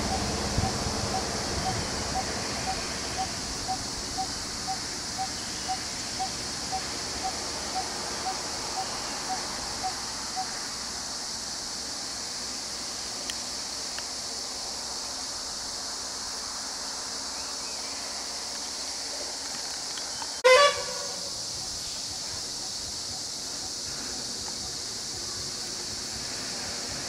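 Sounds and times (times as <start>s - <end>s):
high-pitched hiss: 0.0s - 27.0s
vehicle horn blast: 20.4s - 21.2s.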